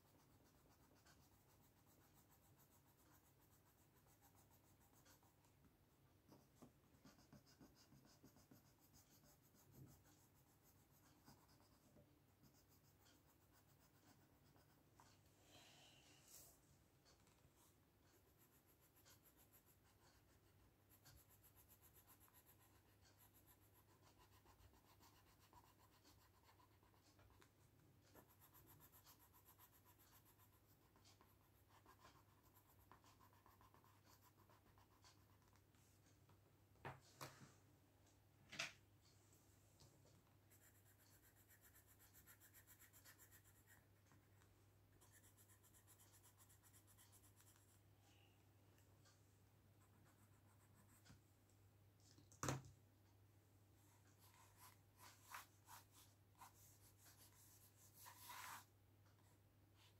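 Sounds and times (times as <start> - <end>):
pencil scratching on paper: 0.0 - 5.5, 6.2 - 15.2, 16.3 - 35.7, 40.2 - 48.3, 49.8 - 51.2, 54.0 - 59.9.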